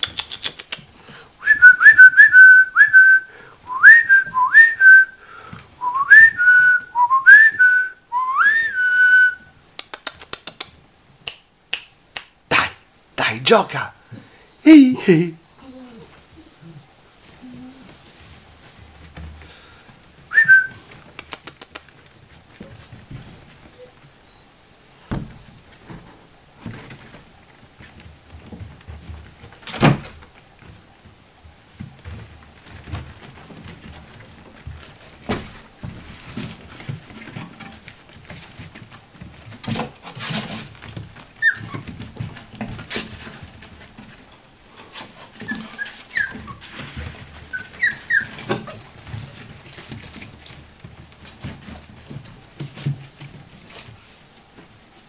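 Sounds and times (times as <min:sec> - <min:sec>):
puppies thumping and scuffling: 0:00.0 - 0:09.6, 0:15.0 - 0:55.0
person whistling short calls: 0:01.4 - 0:05.2, 0:05.8 - 0:09.5, 0:20.3 - 0:20.8.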